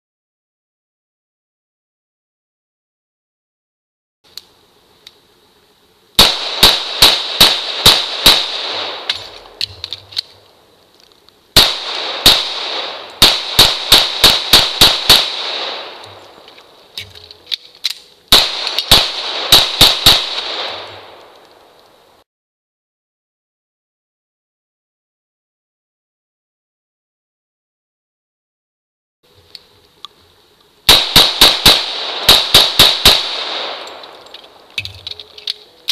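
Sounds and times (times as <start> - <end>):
rapid gunshots on steel targets: 6.2 - 10.0, 11.6 - 16.1, 18.3 - 21.1, 30.9 - 35.1.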